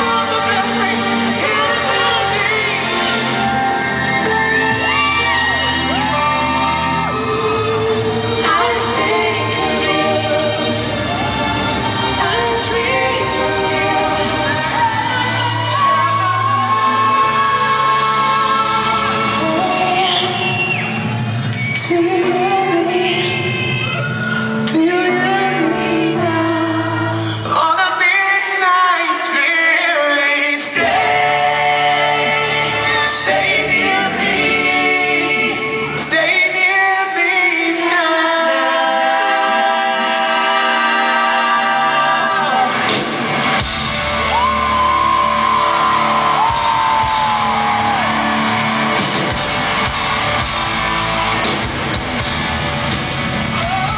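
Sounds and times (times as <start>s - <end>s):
person singing: 0.0s - 3.8s, 4.8s - 20.6s, 21.8s - 43.1s
rock band playing live: 0.0s - 21.4s, 42.2s - 53.9s.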